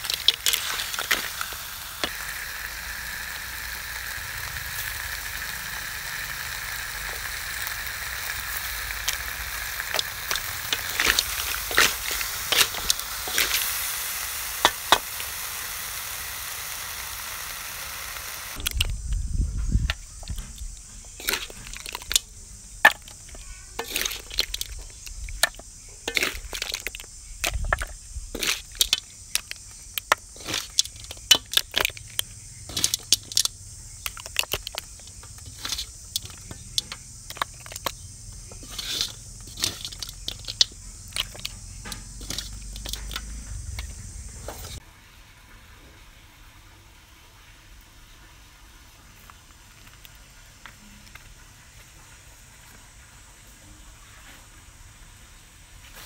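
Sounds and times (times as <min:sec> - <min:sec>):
snail shells clicking together: 0:00.0 - 0:17.1, 0:18.6 - 0:19.2, 0:22.9 - 0:44.0
steady high hiss: 0:00.0 - 0:45.3.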